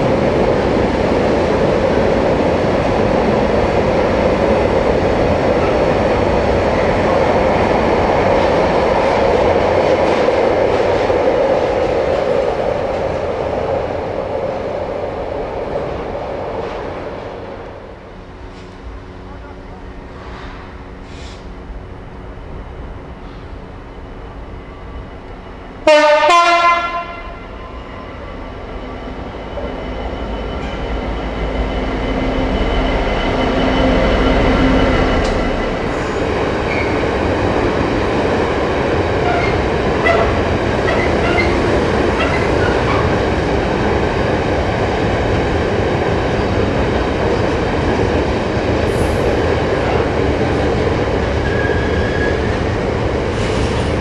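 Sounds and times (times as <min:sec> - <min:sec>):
diesel locomotive engine: 0:00.0 - 0:54.0
train wagons rumbling: 0:00.0 - 0:54.0
two-note train horn: 0:25.8 - 0:27.6.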